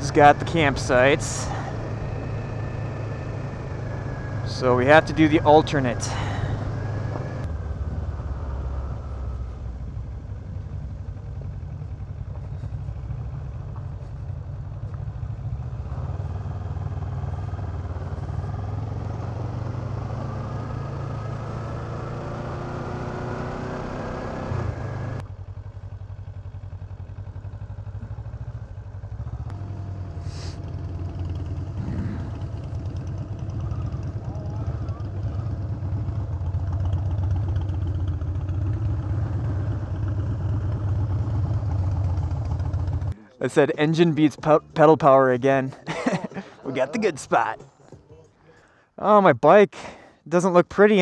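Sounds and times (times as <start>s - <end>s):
motorcycle engine accelerating: 0.0s - 43.3s.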